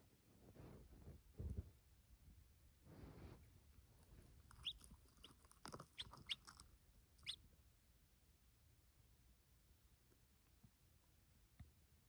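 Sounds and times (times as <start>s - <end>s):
chick peeping: 4.5s - 6.6s, 7.2s - 7.4s.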